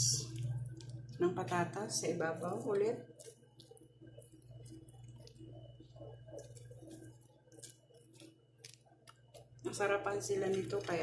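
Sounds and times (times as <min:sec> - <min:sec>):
steady low hum: 0:00.0 - 0:11.0
soft squishes of food slices: 0:00.1 - 0:11.0.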